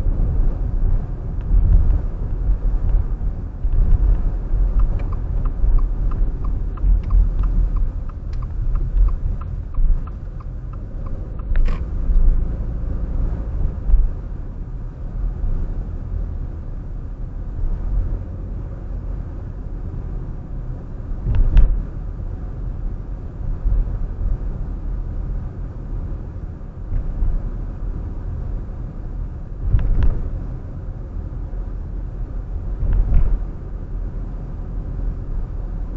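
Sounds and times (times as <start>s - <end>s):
car engine and road noise: 0.0s - 35.9s
fast regular ticking: 4.0s - 11.8s
sharp clicks: 4.8s - 12.2s.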